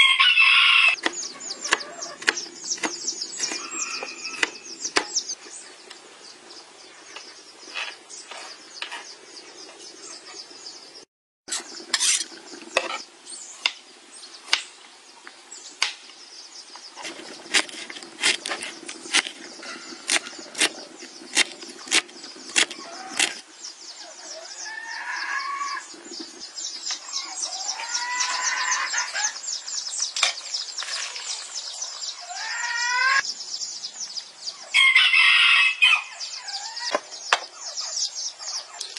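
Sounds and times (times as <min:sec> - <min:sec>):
chickens clucking: 0:00.9 - 0:05.3.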